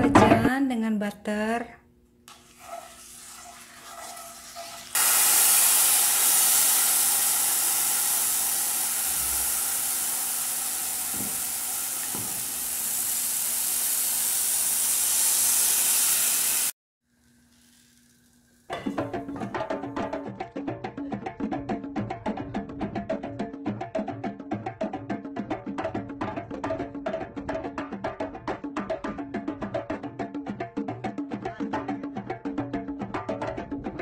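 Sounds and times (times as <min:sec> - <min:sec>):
batter sizzling in a frying pan: 0:02.3 - 0:19.0.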